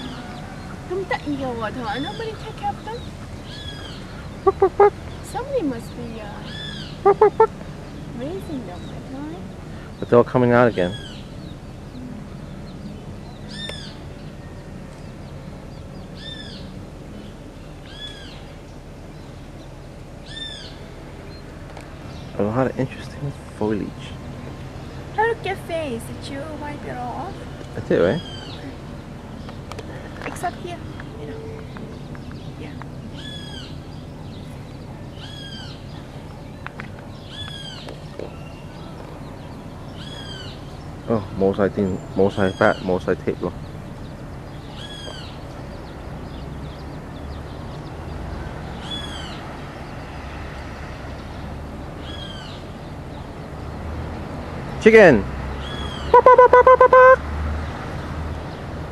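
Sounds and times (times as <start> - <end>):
chicks peeping: 0.0 - 5.0, 6.7 - 7.5, 55.9 - 57.2
bird calling: 0.0 - 23.2, 23.8 - 49.5, 55.6 - 57.3.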